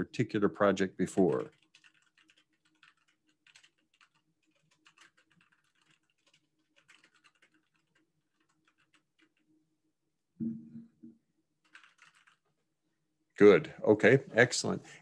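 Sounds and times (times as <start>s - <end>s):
keyboard typing: 1.1s - 9.5s, 11.6s - 12.6s.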